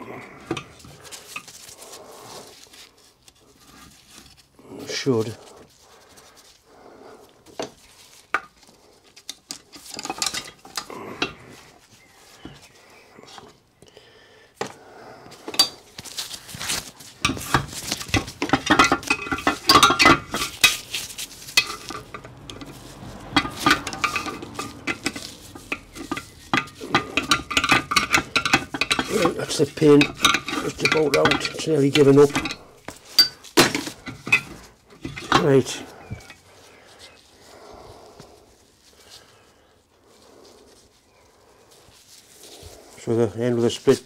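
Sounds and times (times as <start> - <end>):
hand tools scraping on metal: 0.4 - 13.6, 15.3 - 39.4
metal rattling: 16.6 - 36.4.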